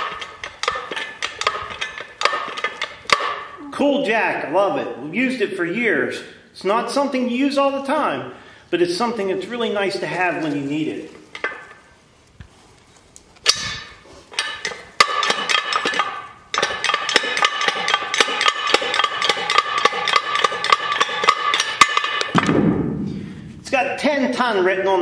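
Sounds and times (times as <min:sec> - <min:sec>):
metal clanks: 0:00.0 - 0:03.6, 0:11.3 - 0:11.8, 0:13.4 - 0:23.7
jack ratchet clicking: 0:14.4 - 0:22.3.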